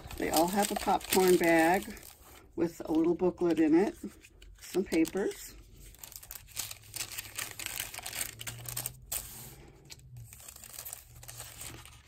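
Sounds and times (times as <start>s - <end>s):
paper rustling and crinkling: 0.0s - 12.0s.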